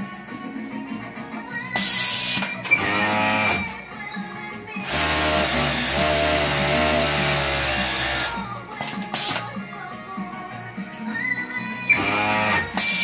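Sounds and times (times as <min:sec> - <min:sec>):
background music: 0:00.0 - 0:13.0
sewing machine running: 0:01.8 - 0:03.8, 0:04.8 - 0:09.4, 0:11.9 - 0:13.0.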